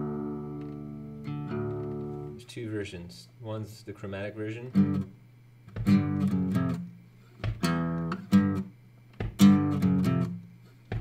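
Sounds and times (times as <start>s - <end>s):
acoustic guitar riff: 0.0s - 2.4s, 4.7s - 5.1s, 5.7s - 11.0s.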